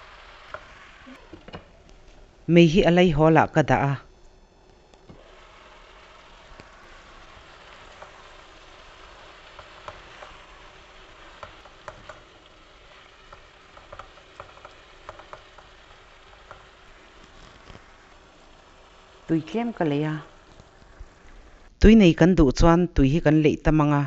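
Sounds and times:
vegetables sizzling in a pan: 0.0 - 3.3, 4.4 - 21.8
spatula tapping and scraping pan: 9.4 - 10.6, 11.2 - 16.8.

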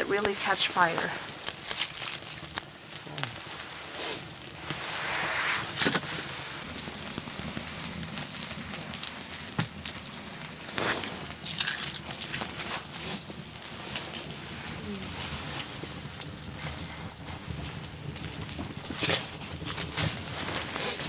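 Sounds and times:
wood fire crackling and popping: 0.0 - 21.0
firewood knocks and rustles: 5.7 - 21.0.

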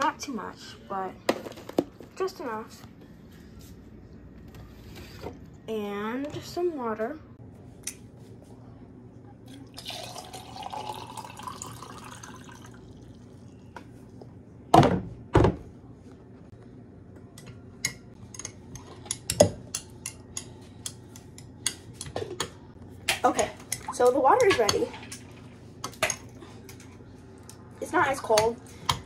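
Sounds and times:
water pouring into pitcher: 9.6 - 13.3.

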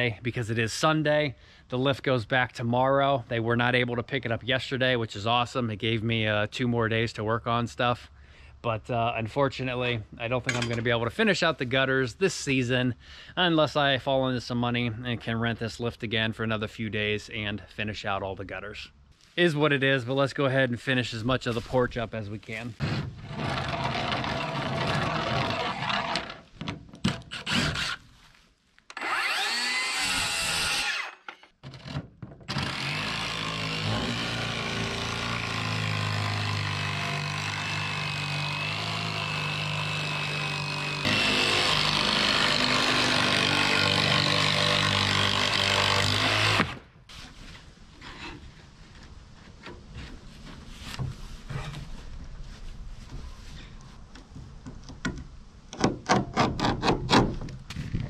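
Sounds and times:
power tool cutting wood: 23.3 - 26.4, 27.3 - 28.0, 28.9 - 31.3, 32.5 - 46.8.

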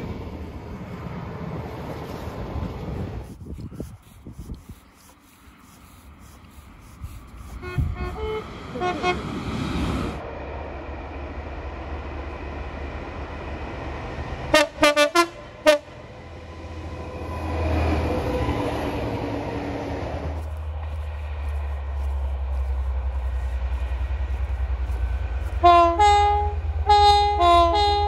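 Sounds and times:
diesel engine rumble: 0.0 - 10.3, 18.2 - 28.0
electric train horn toots: 7.6 - 9.3, 14.5 - 16.0, 25.6 - 28.0
locomotive horn blasts: 7.6 - 9.3, 14.5 - 16.0, 25.6 - 28.0.

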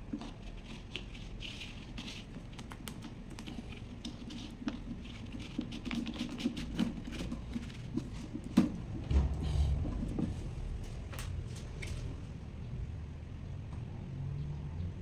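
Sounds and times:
plastic clicks and scraping: 0.1 - 8.8.

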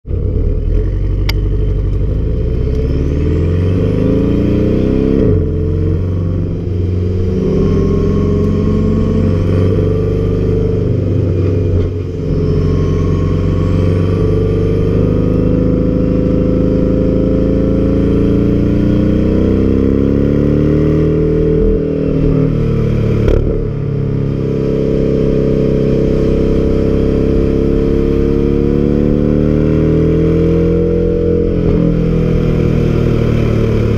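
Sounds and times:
sports car engine accelerating: 0.1 - 33.9
faint rising whine: 0.2 - 33.9.

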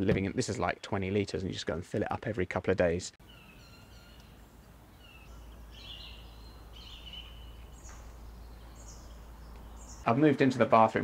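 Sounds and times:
low outdoor rumble: 4.2 - 10.1.

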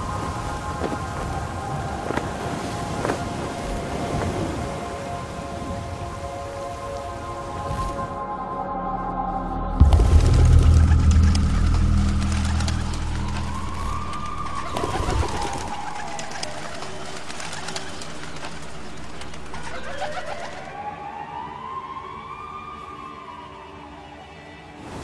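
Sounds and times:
rising and falling tone: 8.7 - 16.6
pigeons flapping wings: 13.8 - 20.6.

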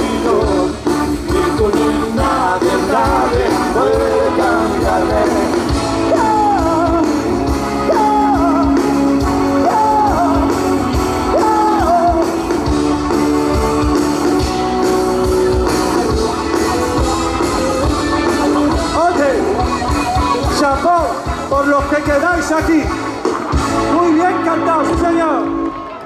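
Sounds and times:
sliding melody line: 0.0 - 25.2
steady drum beat: 0.0 - 25.2
guitar: 0.0 - 26.0
live pop-rock band playing: 0.0 - 26.0.

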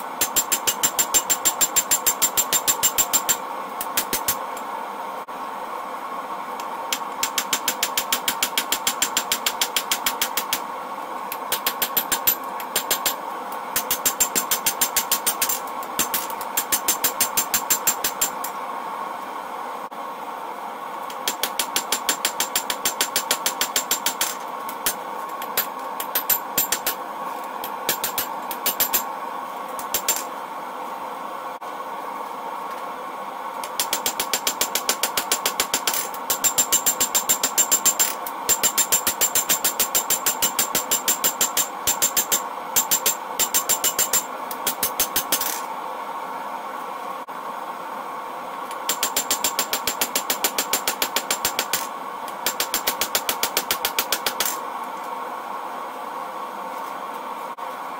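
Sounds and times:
steady hum: 0.0 - 57.9.

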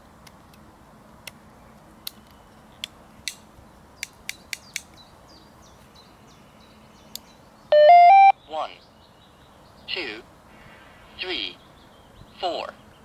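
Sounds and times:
sharp plastic clicks: 4.0 - 5.0.

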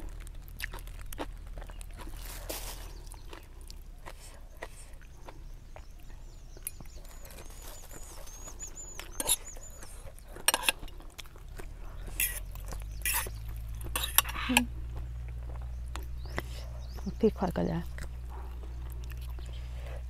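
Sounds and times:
person chewing: 0.0 - 17.1, 17.8 - 20.0
eating noises: 0.0 - 20.0
bird chirping rapidly: 4.4 - 10.3, 11.9 - 19.8.

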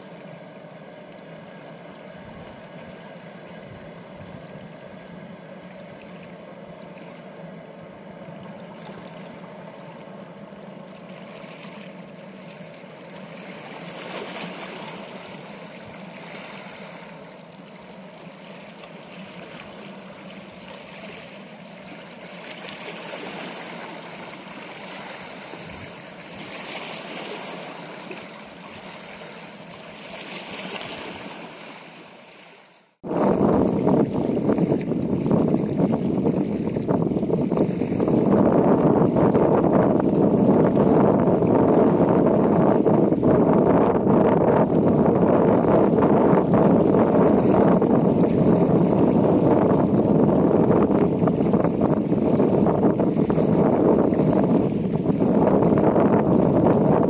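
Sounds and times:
boat engine hum: 0.0 - 57.0
water rushing and splashing: 0.0 - 57.0.

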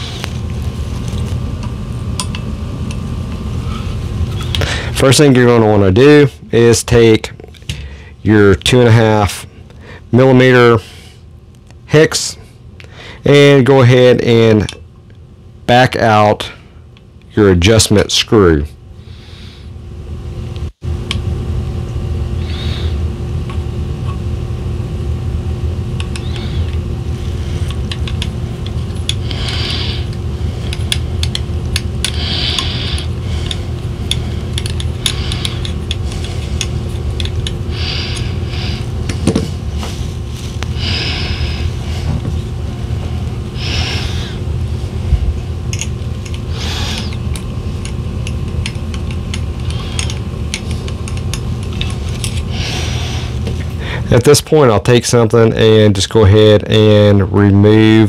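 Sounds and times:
steady low hum: 0.0 - 58.0
hex driver clicking and scraping: 27.7 - 38.3.

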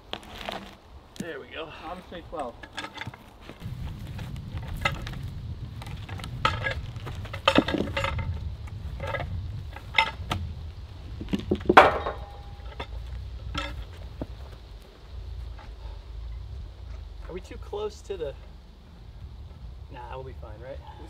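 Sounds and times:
low rumble: 3.6 - 21.0
wooden knocks of log: 11.2 - 12.6
metallic ring: 11.8 - 13.9.

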